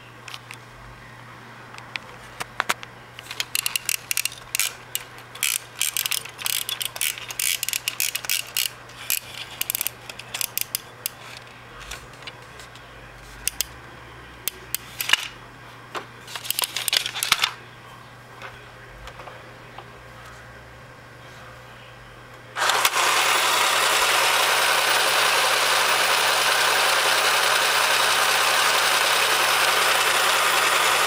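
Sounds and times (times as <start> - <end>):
plastic toy clicking and rattling: 3.2 - 11.5, 16.3 - 17.5, 22.6 - 31.0.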